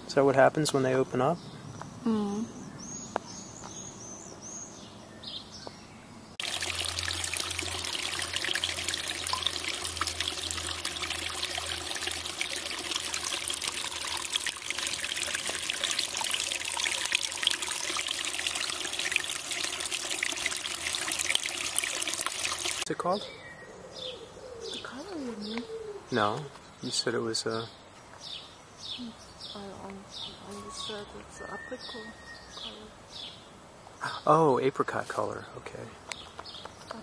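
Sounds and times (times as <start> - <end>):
water trickling over rocks: 6.4 - 22.9
faint bird chirps: 23.1 - 33.4.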